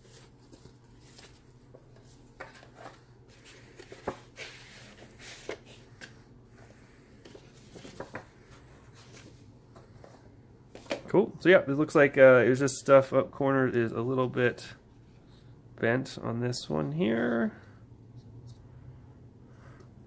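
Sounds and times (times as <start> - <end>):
paper rustling and sliding: 0.0 - 11.0.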